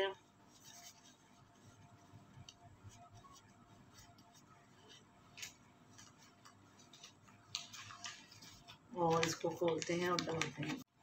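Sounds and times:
tissue rustling across skin: 0.0s - 10.9s.

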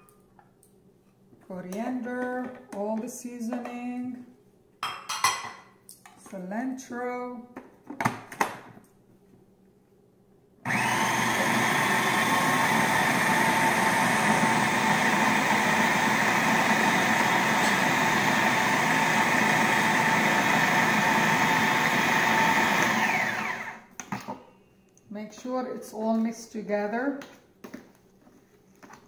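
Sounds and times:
food processor motor grinding: 10.7s - 23.9s.

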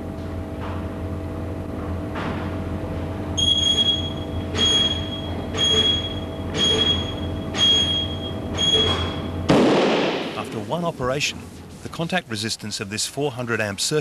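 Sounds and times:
low electrical hum: 0.0s - 14.0s
high electronic beeps: 3.4s - 9.3s.

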